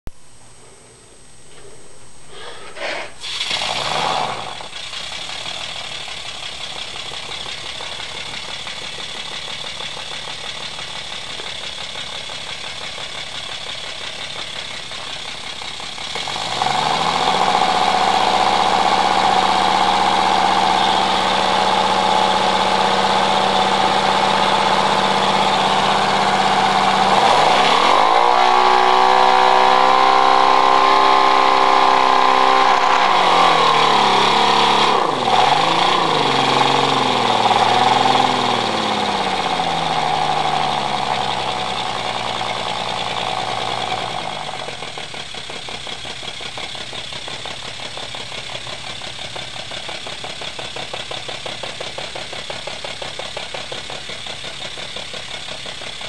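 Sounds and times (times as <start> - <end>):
hiss of compressed air: 2.3 - 4.6
radial engine whining: 17.2 - 42.7.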